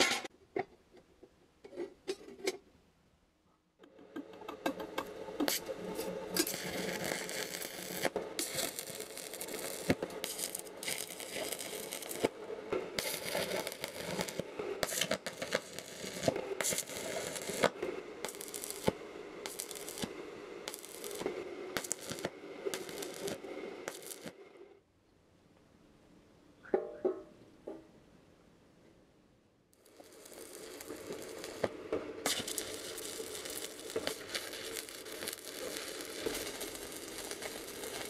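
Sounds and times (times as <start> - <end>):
arc welding crackling and popping: 0.0 - 0.3, 3.8 - 24.6, 29.8 - 38.0.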